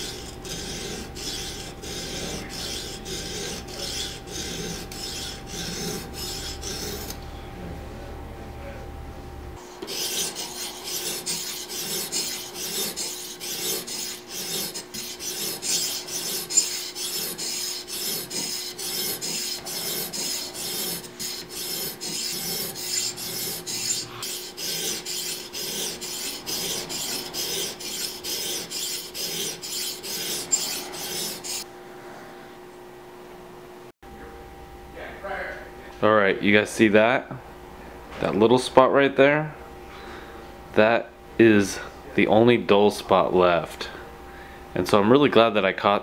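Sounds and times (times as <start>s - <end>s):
sharpening stone scraping serrated blade: 0.0s - 7.2s, 9.8s - 31.6s.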